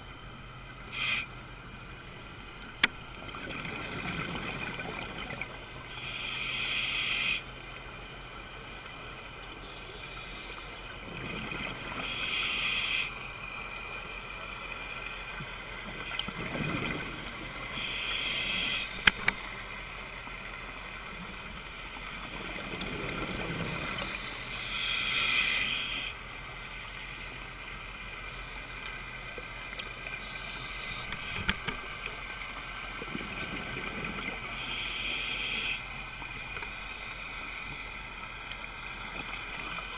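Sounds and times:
steady hum: 0.0s - 39.9s
regulator inhalations: 5.9s - 7.4s, 12.0s - 13.1s, 17.7s - 19.9s, 23.6s - 26.1s, 30.2s - 31.7s, 34.5s - 35.9s, 36.6s - 38.0s
exhaled bubbles underwater: 15.8s - 17.8s, 22.2s - 24.2s, 32.9s - 34.6s.

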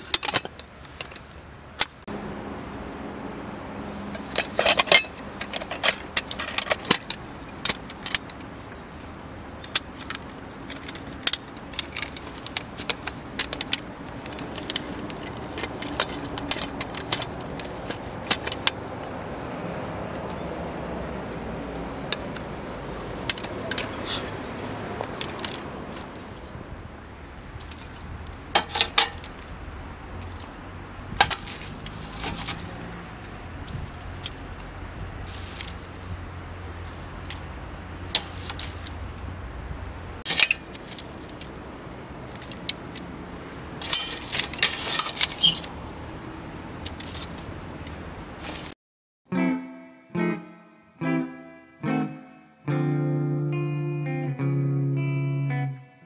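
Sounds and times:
utensils scraping metal cookware: 43.8s - 45.7s.

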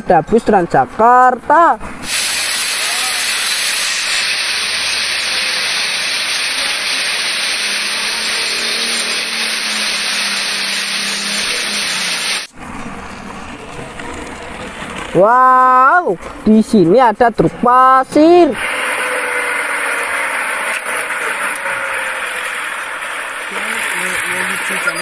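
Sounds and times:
rain hissing: 2.0s - 12.5s, 18.5s - 25.0s.

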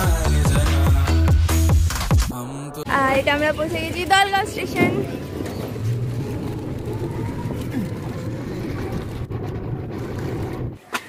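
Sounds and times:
moving vehicle rumble: 2.8s - 11.0s.

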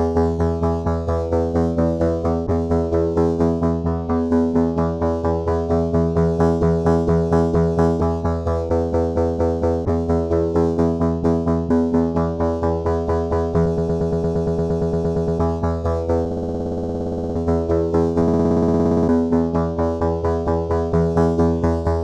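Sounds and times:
electronic loop music: 18.1s - 19.5s
fast buzzing stutter: 18.2s - 19.3s.

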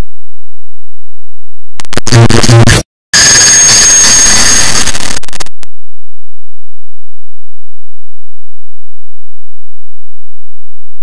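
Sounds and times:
harsh clipped digital noise: 1.8s - 5.7s.

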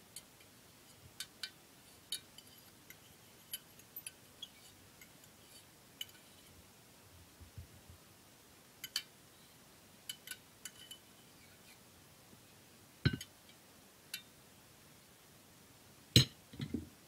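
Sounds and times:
metallic clinks on pan and plate: 13.1s - 13.3s.

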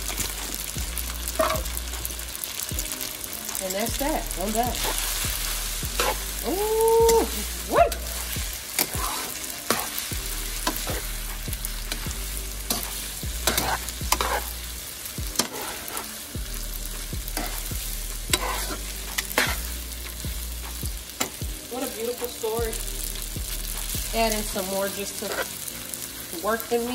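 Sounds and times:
noodles sizzling in pan: 0.0s - 26.9s
utensil scraping pan: 11.9s - 14.6s, 15.3s - 16.2s, 18.3s - 19.7s.

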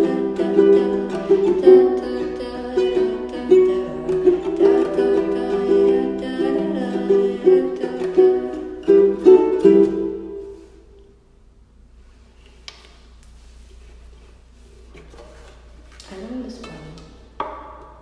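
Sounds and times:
plucked string instrument chords: 0.0s - 10.7s.

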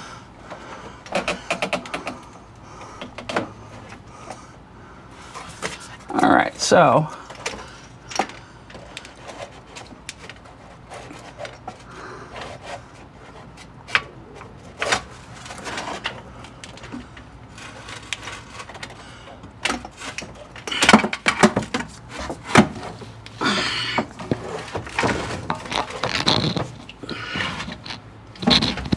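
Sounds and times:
hand tools clicking on bolts: 1.0s - 2.4s.

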